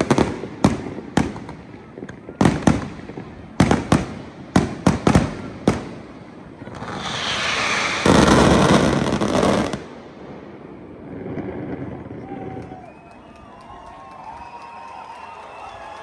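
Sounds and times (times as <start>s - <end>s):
firework bangs: 0.0s - 12.2s
firework fountain hissing: 2.2s - 11.8s.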